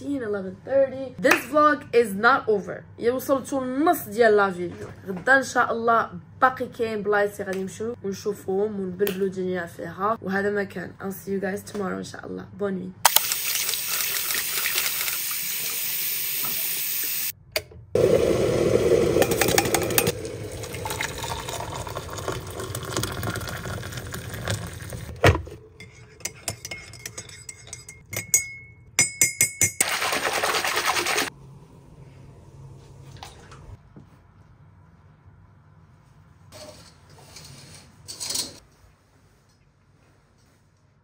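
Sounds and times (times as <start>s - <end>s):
water running: 13.1s - 17.3s, 18.0s - 27.4s, 29.8s - 31.3s.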